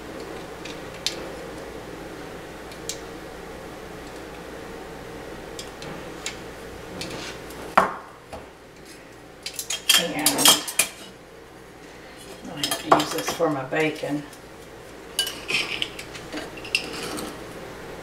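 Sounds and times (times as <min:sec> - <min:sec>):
metal tongs and dishes clinking: 0:09.4 - 0:11.1, 0:12.2 - 0:14.0, 0:15.2 - 0:17.4.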